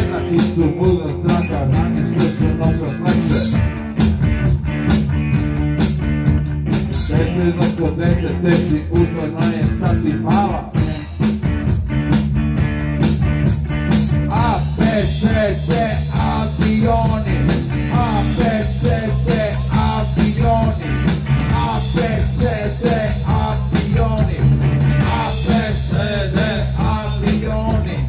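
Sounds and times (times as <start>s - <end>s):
person singing: 0.0s - 3.6s, 7.1s - 10.8s, 14.3s - 20.8s, 21.5s - 24.4s, 25.0s - 28.0s
drum beat: 0.0s - 28.0s
electric guitars: 0.0s - 28.0s.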